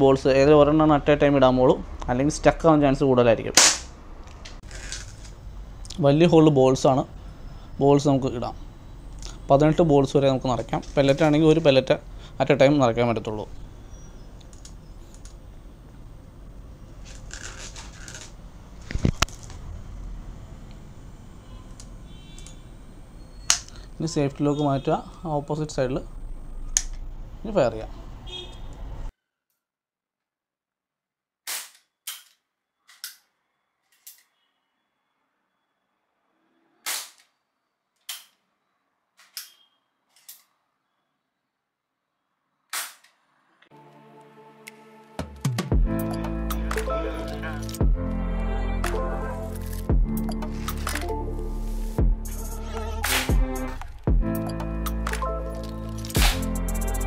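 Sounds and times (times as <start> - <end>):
air pistol shots: 3.6 - 3.9, 53.0 - 53.5, 56.2 - 56.5
scratchy rustle: 17.0 - 19.2
sharp double knock: 56.2 - 56.5.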